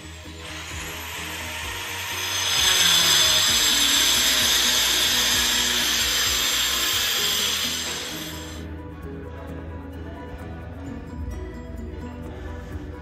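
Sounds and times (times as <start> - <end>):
electric marble cutter cutting stone: 0.0 - 8.6
background music: 0.0 - 13.0.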